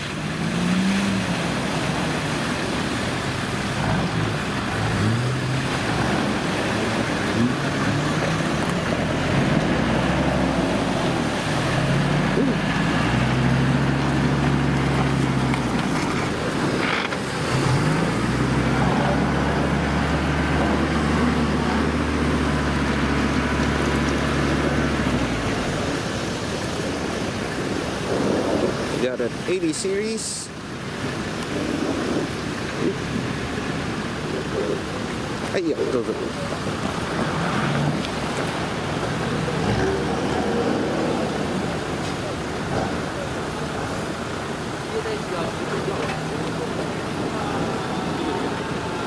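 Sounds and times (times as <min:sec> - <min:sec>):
engine revving: 0:00.0 - 0:26.0, 0:37.0 - 0:43.2
constant rushing noise: 0:00.0 - 0:49.0.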